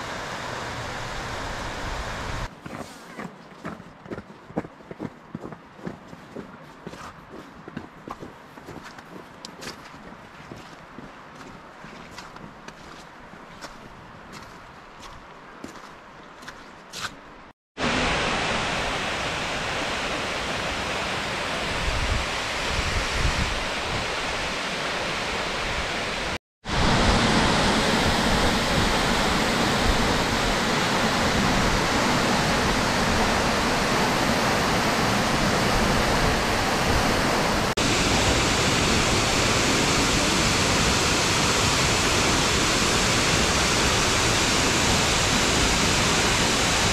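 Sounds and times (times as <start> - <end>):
waterfall rushing: 17.8 - 46.9.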